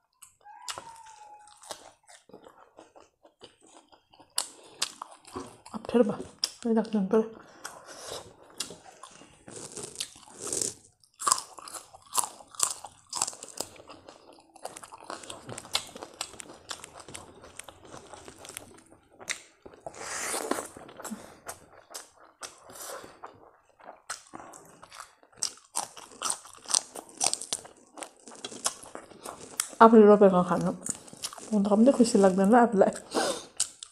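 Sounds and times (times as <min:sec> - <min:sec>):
crisp crunching and chewing: 0:00.2 - 0:06.7, 0:07.6 - 0:29.8, 0:30.5 - 0:32.4, 0:33.0 - 0:33.9.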